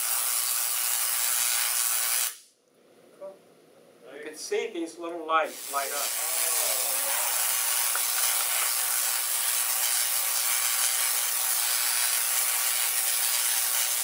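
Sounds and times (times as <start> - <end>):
tesla coil spark hiss: 0.0 - 2.5, 5.5 - 14.0.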